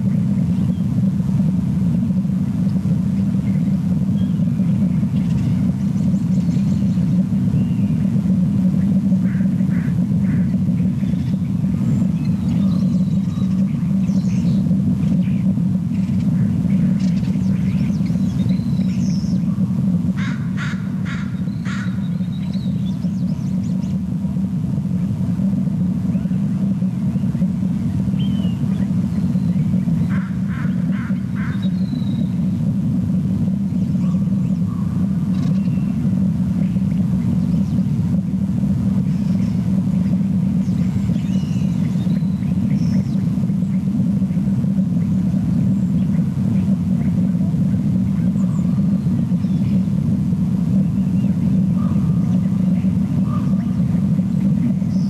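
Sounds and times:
steady low rumble: 0:00.0 - 0:55.0
bird calls: 0:20.2 - 0:24.0, 0:28.1 - 0:32.5.

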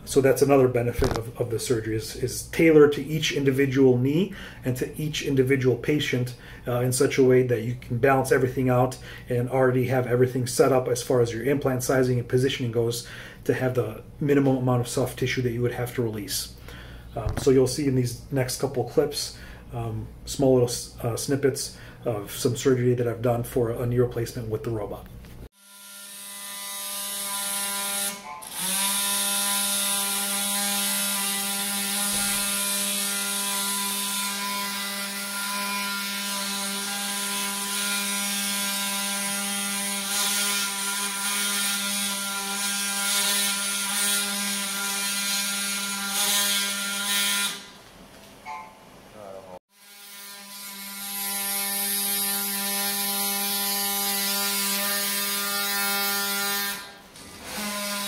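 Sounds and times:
bone saw buzzing: 0:25.6 - 0:47.8, 0:49.7 - 0:58.0.

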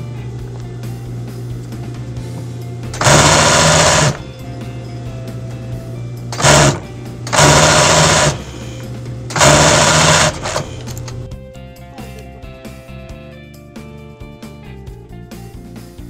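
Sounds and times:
industrial sewing machine running: 0:02.9 - 0:04.3, 0:06.3 - 0:11.2.

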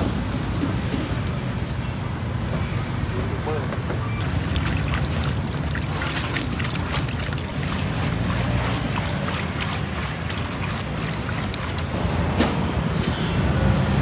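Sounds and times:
oil pouring and splashing into wok: 0:04.2 - 0:12.0.

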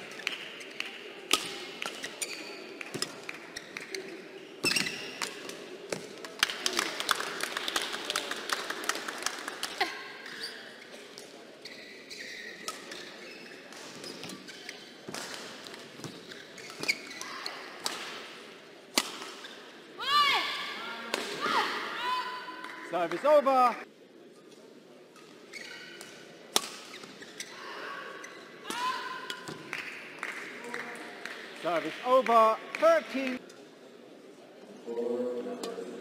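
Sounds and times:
shoe squeaks on court: 0:03.6 - 0:05.2, 0:11.6 - 0:15.1, 0:16.0 - 0:17.3, 0:25.5 - 0:26.1.

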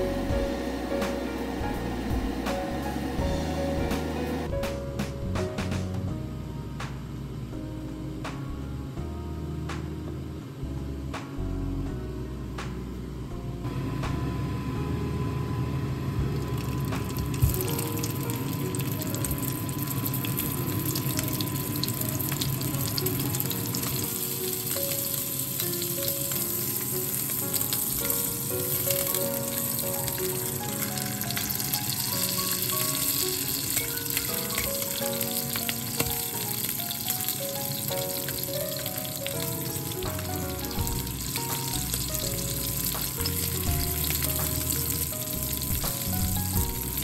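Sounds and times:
background music: 0:00.0 - 0:47.0
sausages sizzling in a pan: 0:16.4 - 0:47.0.

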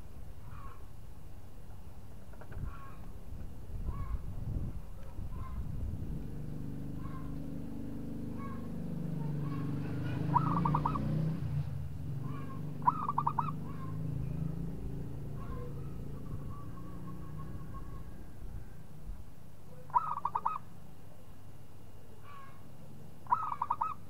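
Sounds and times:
dove cooing: 0:08.4 - 0:11.2, 0:12.2 - 0:14.2, 0:15.2 - 0:18.3, 0:19.7 - 0:20.7, 0:23.2 - 0:24.0.

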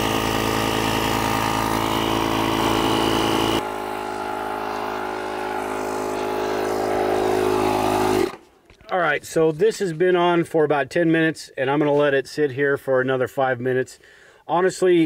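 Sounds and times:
air compressor humming: 0:00.0 - 0:08.5.

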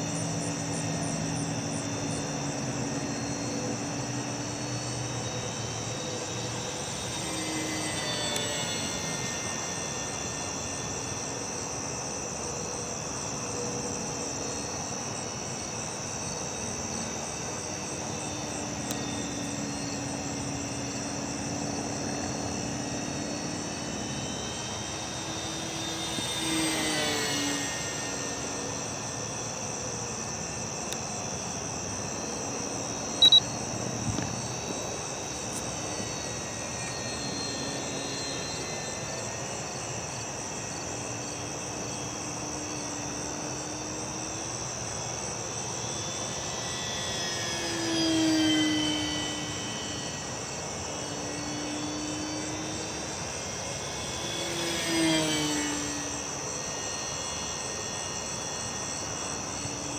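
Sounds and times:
crickets chirping: 0:00.0 - 0:59.9
model plane motor whining: 0:00.0 - 0:59.9
sharp click: 0:33.2 - 0:33.5.

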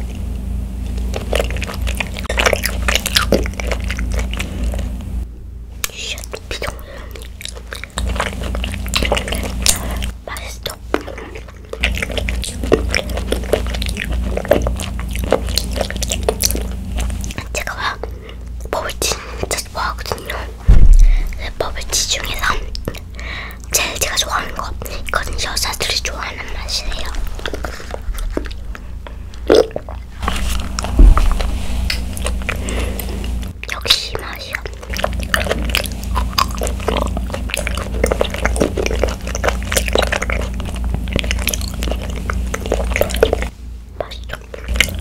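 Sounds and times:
wet chewing mouth sounds: 0:00.8 - 0:05.2, 0:05.8 - 0:45.0
low thump: 0:20.6 - 0:21.4, 0:30.6 - 0:32.0.

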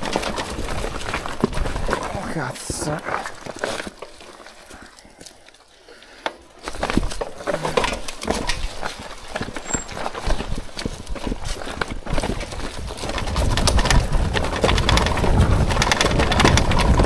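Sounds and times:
bike knocking and rattling: 0:00.0 - 0:04.4, 0:06.1 - 0:17.0
tyres crunching on stones: 0:00.0 - 0:05.4.

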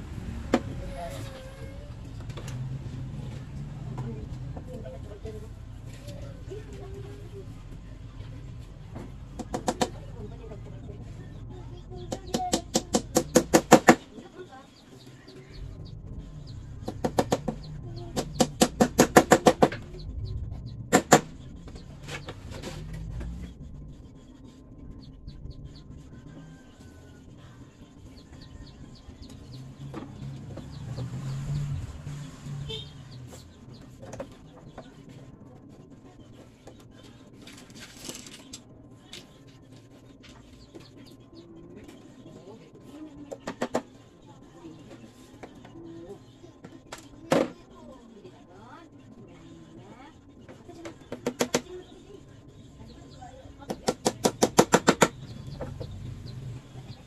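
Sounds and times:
sharp knocks: 0:20.9 - 0:21.4.

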